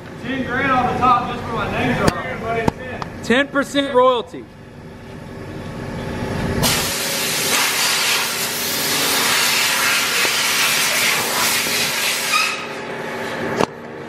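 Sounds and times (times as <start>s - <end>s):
compressed air hissing: 6.6s - 12.8s.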